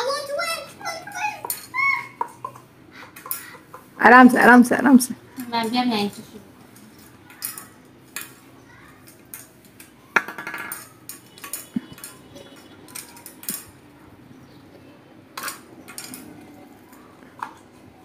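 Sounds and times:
spoons and balls clicking on glass: 0:06.8 - 0:13.8.

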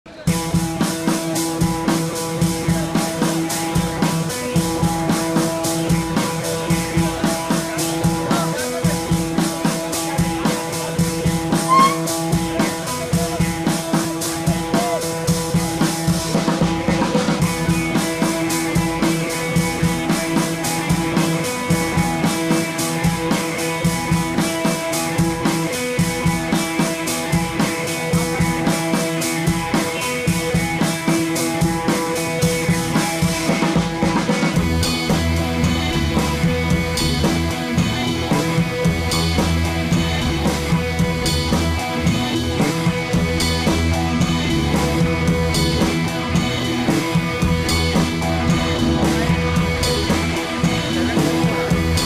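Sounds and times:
steady drum beat: 0:00.1 - 0:52.0
sustained musical notes: 0:11.7 - 0:12.3.

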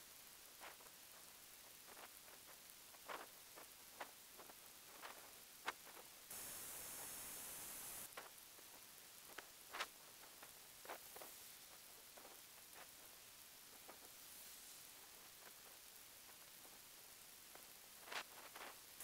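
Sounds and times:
steady hiss: 0:00.0 - 0:19.0
faint ticks: 0:00.5 - 0:14.2.

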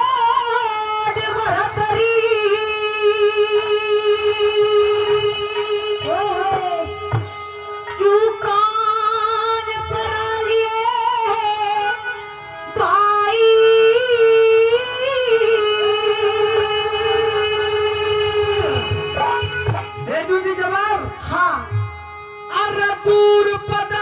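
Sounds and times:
woman singing into microphone: 0:00.0 - 0:07.0, 0:07.9 - 0:12.2, 0:12.8 - 0:20.2
instrumental drone accompaniment: 0:02.3 - 0:23.9.

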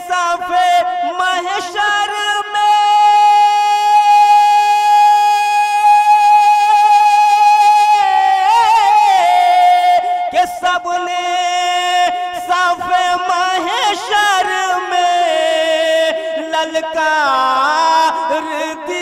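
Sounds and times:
man singing unaccompanied: 0:00.0 - 0:19.0.

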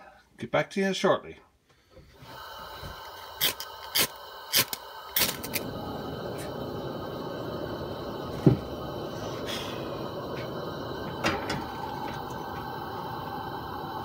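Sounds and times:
gas burner hissing: 0:02.0 - 0:14.0
loud thump: 0:08.4 - 0:08.7.

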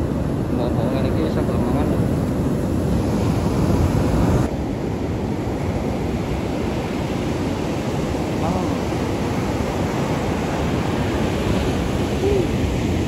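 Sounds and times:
ocean surf breaking: 0:00.0 - 0:13.0
wind buffeting microphone: 0:00.0 - 0:13.0.

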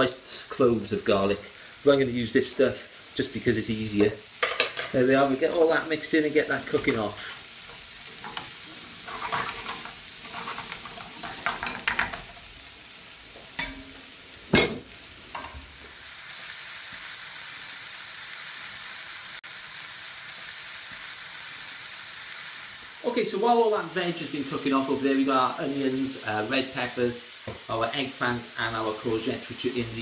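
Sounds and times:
vegetables sizzling in oil: 0:00.0 - 0:30.0
wooden spoon scraping pan: 0:06.7 - 0:12.3.

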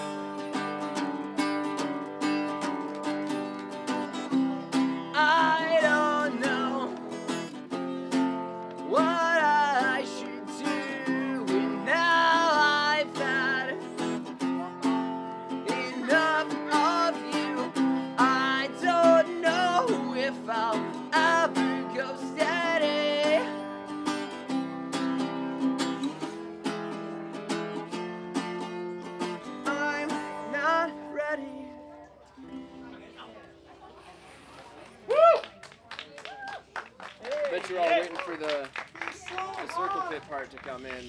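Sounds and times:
acoustic guitar strumming: 0:00.0 - 0:33.6
person singing: 0:04.3 - 0:07.3, 0:08.8 - 0:23.6, 0:29.3 - 0:31.9.

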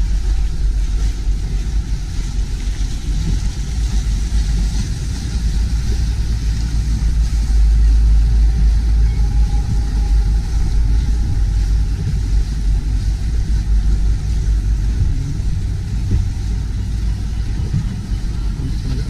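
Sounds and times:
choppy water: 0:00.0 - 0:19.0
motorboat engines passing: 0:00.0 - 0:19.0
wind buffeting microphone: 0:00.0 - 0:19.0.

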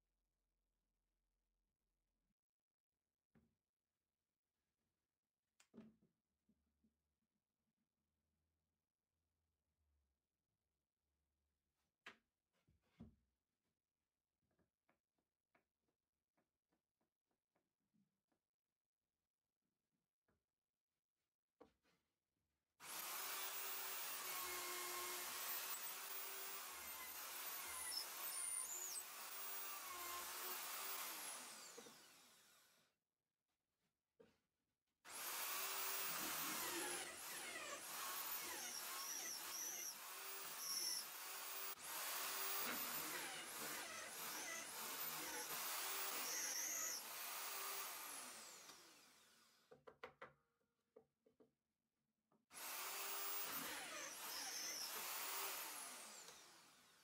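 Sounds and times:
electric drill boring into wood: 0:22.8 - 0:32.9, 0:35.1 - 0:49.6, 0:52.6 - 0:57.0.

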